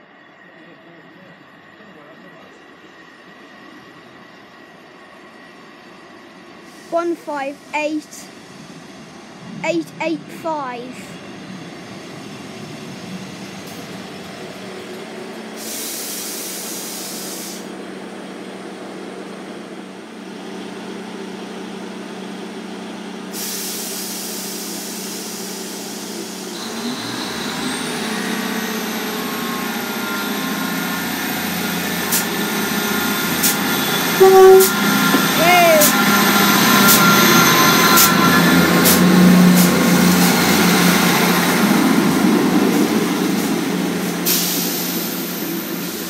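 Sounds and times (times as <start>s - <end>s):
diesel train engine running: 0.0s - 46.0s
air hissing: 15.6s - 17.7s, 23.3s - 26.6s, 30.6s - 40.5s, 43.4s - 46.0s.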